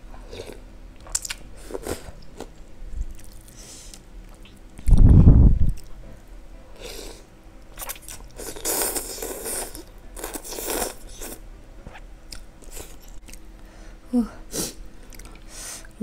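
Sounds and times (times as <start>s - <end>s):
person chewing: 0.3s - 5.9s, 7.8s - 13.5s, 15.1s - 15.5s
person slurping noodles: 8.4s - 11.4s.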